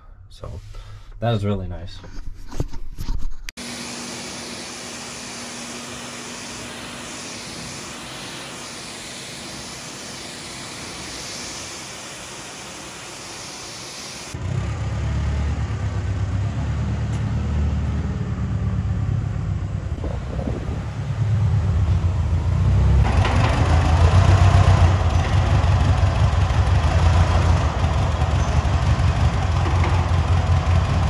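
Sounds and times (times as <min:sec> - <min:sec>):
pressure washer spray on metal: 0:03.6 - 0:14.4
loud low rumble: 0:17.9 - 0:31.0.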